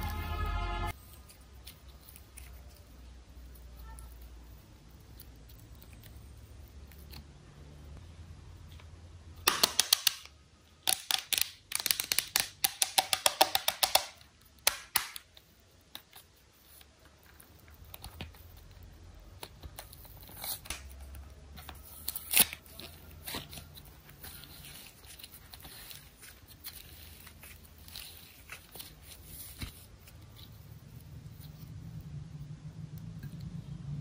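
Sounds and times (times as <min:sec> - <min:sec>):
rapid sharp clicks and pops: 0:09.4 - 0:15.3.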